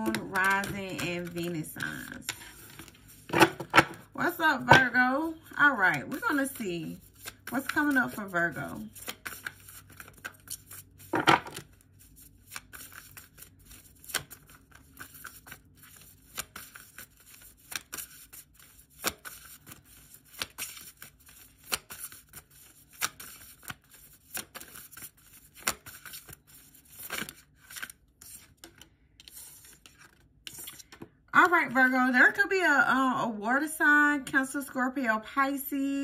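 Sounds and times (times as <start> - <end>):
cards being shuffled: 0.0 - 31.1
card set down on table: 11.1 - 11.6.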